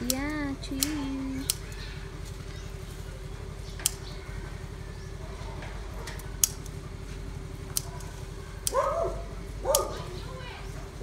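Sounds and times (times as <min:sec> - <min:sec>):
scissors snipping stems: 0:00.0 - 0:02.4, 0:03.7 - 0:04.2, 0:06.0 - 0:09.0, 0:09.6 - 0:10.2
steady low hum: 0:00.0 - 0:11.0.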